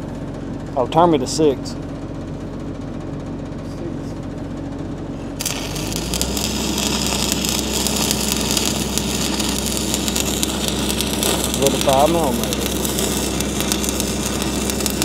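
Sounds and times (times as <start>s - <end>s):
welding arc crackling and hissing: 5.4s - 15.0s
welding machine humming: 5.4s - 15.0s.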